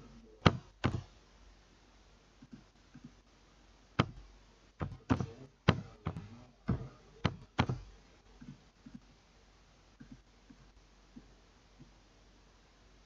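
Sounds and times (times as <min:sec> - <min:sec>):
keyboard keys and mouse clicks: 0:00.2 - 0:01.1, 0:04.0 - 0:04.2, 0:04.8 - 0:09.1, 0:10.0 - 0:12.0
dull thud on desk: 0:00.4 - 0:01.1, 0:04.8 - 0:07.9.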